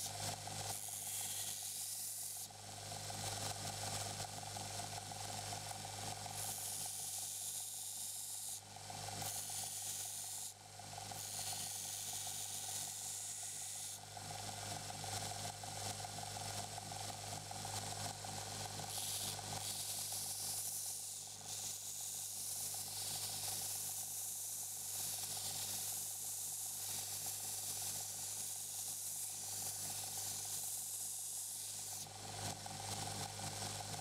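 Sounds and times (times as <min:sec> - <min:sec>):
steel blade grinding hiss: 0:00.7 - 0:02.5, 0:06.4 - 0:08.6, 0:09.2 - 0:10.5, 0:11.2 - 0:14.0, 0:18.9 - 0:32.0.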